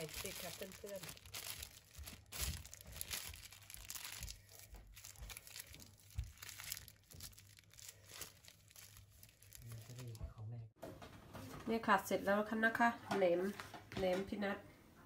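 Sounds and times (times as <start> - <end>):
plastic bags crinkling: 0.0 - 10.2.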